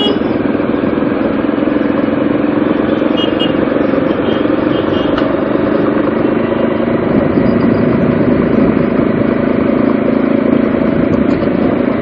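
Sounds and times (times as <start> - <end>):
motorcycle engine running: 0.0 - 12.0
road noise: 0.0 - 12.0
wind noise: 6.8 - 9.6, 10.9 - 12.0.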